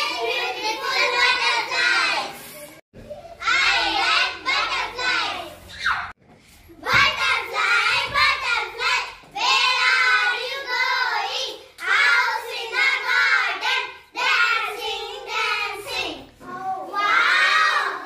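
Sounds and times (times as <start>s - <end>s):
children singing: 0.0s - 2.4s, 6.8s - 18.0s.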